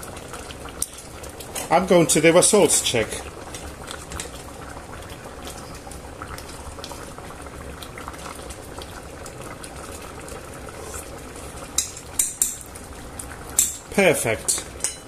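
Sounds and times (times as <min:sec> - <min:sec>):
stew bubbling at a boil: 0:00.0 - 0:15.0.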